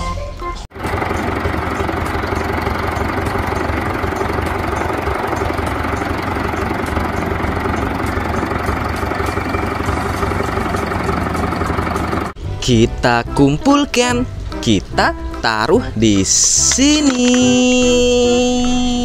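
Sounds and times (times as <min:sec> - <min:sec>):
excavator diesel engine running: 0:00.7 - 0:12.4, 0:16.2 - 0:19.0.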